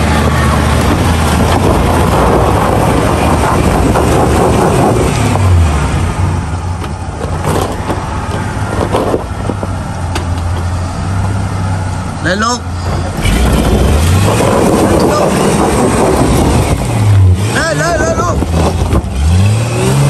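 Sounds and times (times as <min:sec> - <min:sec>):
off-road vehicle engine under load: 0:00.0 - 0:20.0
stones knocking under wheels: 0:06.8 - 0:10.7
tyres grinding on gravel: 0:06.8 - 0:11.3.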